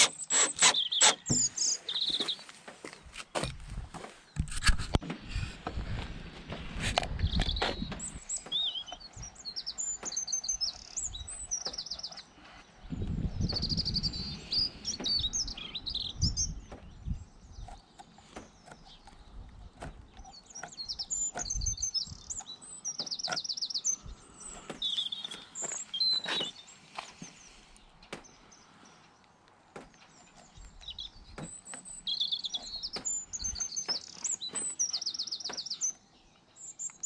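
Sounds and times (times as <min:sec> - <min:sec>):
sharp clicks: 0:00.0 - 0:01.5
songbirds chirping and singing: 0:00.0 - 0:37.0.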